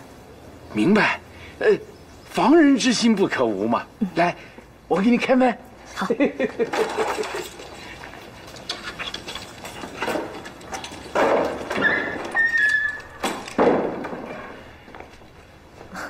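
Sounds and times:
heavy wooden doors scraping open: 7.5 - 14.9
door creaking: 8.5 - 14.9
footsteps on paving: 14.8 - 16.0.

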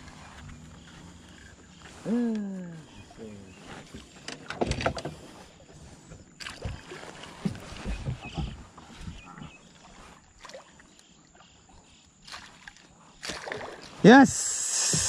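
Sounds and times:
fish splashing at the surface: 12.3 - 13.9.

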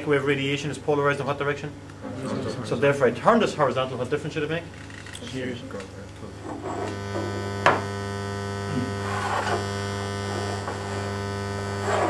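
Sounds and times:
electrical buzz from speaker: 0.0 - 12.0.

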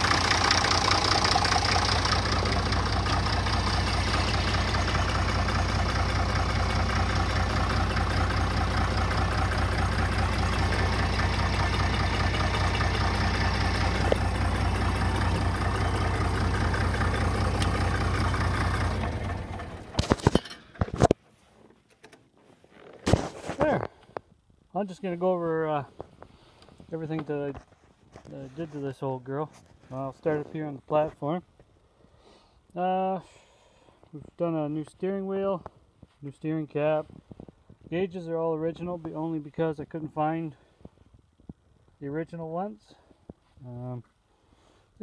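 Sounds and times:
tractor engine idling: 0.0 - 45.0
sharp clicks and knocks: 19.9 - 21.2.

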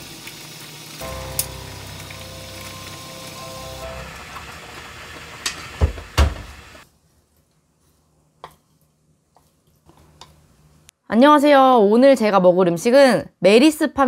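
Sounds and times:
food sizzling: 0.0 - 6.8.

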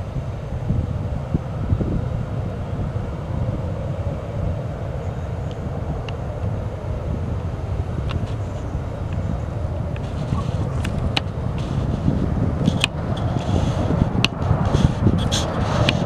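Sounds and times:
jet engines rumbling at takeoff: 0.0 - 16.0.

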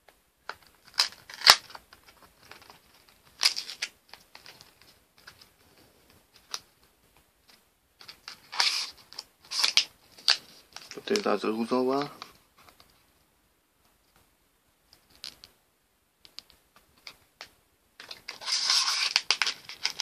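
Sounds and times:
cardboard rustling and tearing: 0.7 - 4.7, 8.0 - 11.4, 18.0 - 20.0.

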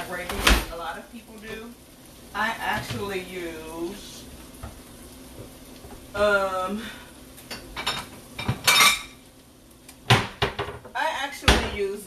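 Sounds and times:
dishes clinking: 7.5 - 9.2
utensils clattering: 7.5 - 9.2.

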